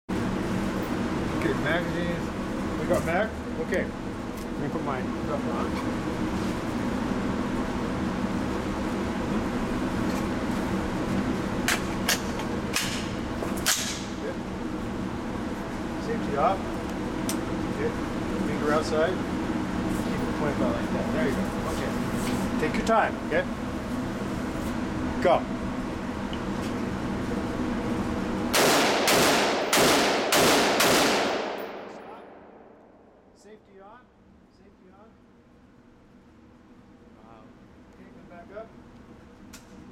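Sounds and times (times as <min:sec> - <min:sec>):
ventilation hum: 0:00.1 - 0:39.9
rifle shots echoing indoors: 0:28.5 - 0:33.0.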